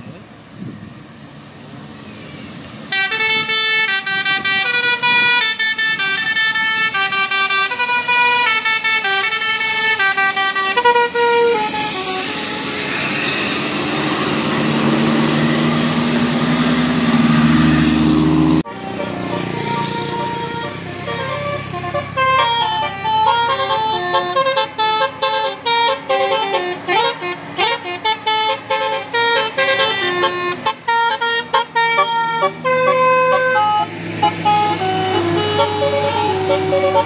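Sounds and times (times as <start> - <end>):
rush of tyres and air: 0.0 - 3.5, 10.8 - 18.6
bus passing: 0.0 - 37.0
bus horn playing a tune: 2.9 - 37.0.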